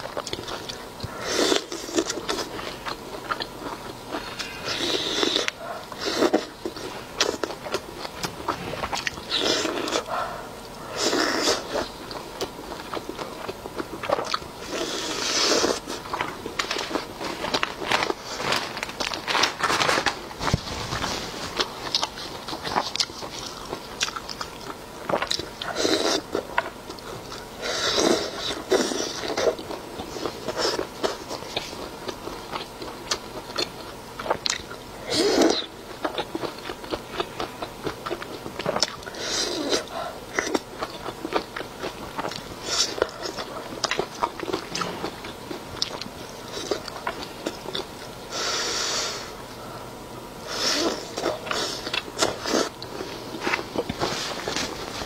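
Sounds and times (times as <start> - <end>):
wet chewing and biting: 21.5 - 34.8, 35.4 - 48.1.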